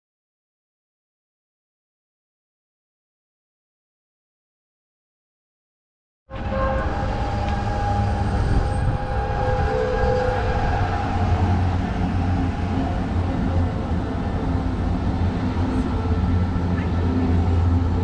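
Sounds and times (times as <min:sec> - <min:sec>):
tram wheels rumbling on rails: 0:06.3 - 0:18.0.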